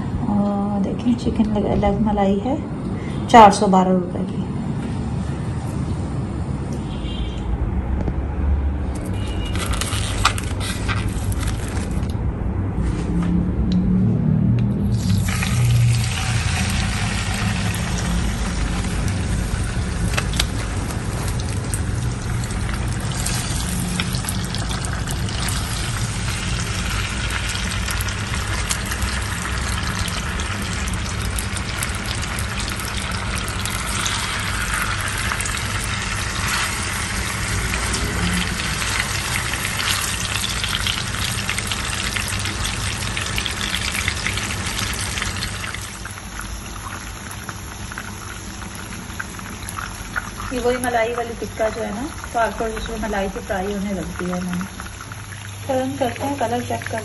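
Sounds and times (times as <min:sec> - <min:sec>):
chicken sizzling in hot oil: 0:14.8 - 0:57.0.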